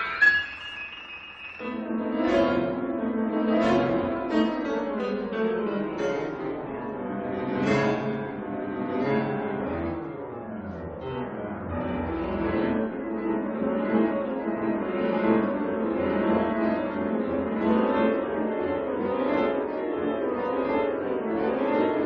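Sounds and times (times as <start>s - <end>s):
keyboard music: 0.0s - 4.5s.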